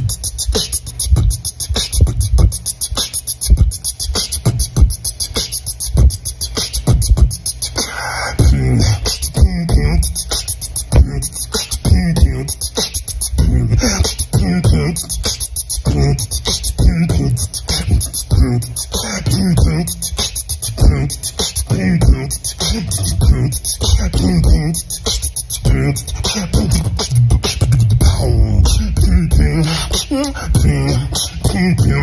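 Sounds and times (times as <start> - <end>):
beatboxing drum groove: 0.0 - 32.0
bending pitched vocal sounds: 7.6 - 15.2, 15.8 - 32.0.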